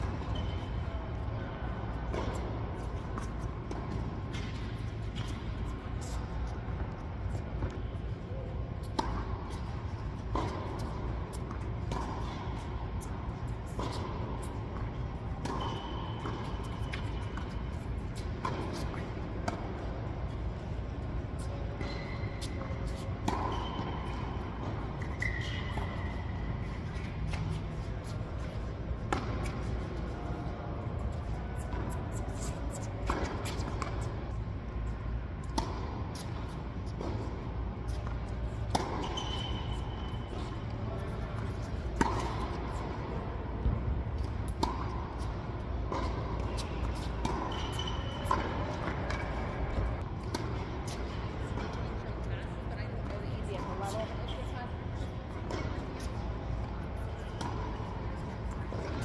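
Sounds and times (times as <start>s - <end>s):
rackets striking tennis ball: 0.0s - 52.0s, 55.2s - 59.0s
low hum of hall: 0.0s - 59.0s
sneakers squeaking on court: 0.0s - 59.0s
ball bouncing: 8.8s - 20.0s, 21.4s - 27.8s, 32.7s - 34.1s, 35.4s - 37.3s, 37.9s - 40.4s, 41.0s - 42.9s, 43.6s - 51.8s, 55.5s - 59.0s.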